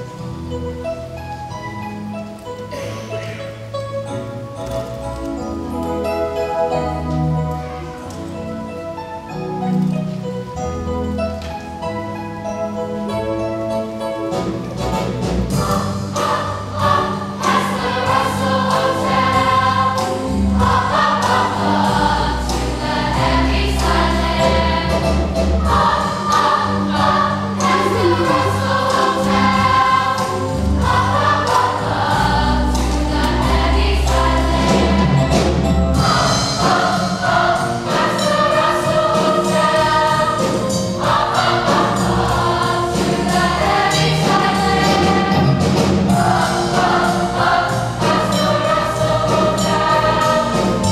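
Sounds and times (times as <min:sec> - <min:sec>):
instrumental accompaniment: 0:00.0 - 0:50.9
children singing in chorus: 0:15.7 - 0:35.2, 0:36.0 - 0:45.6, 0:46.2 - 0:50.9.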